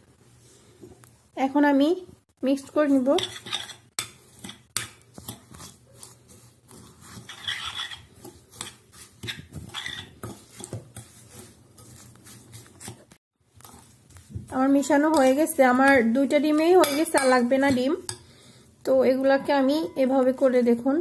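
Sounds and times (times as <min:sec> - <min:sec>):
metal spoon scraping glass bowl: 0:03.0 - 0:13.0, 0:16.8 - 0:18.2.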